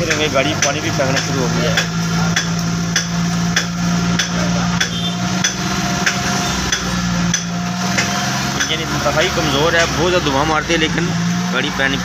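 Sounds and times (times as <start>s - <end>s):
sharp knocking: 0.0s - 8.9s
car engine idling: 0.0s - 12.0s.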